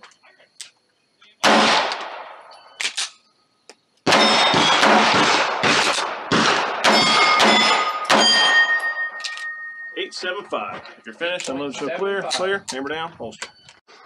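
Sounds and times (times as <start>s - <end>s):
pistol shots: 1.4s - 3.1s, 4.0s - 9.8s
steel plates ringing: 6.8s - 11.2s.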